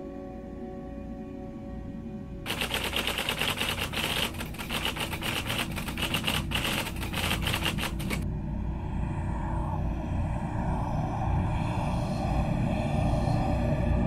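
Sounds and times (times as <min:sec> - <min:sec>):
typewriter key clicks: 0:02.5 - 0:08.2
low rumble: 0:08.2 - 0:14.0.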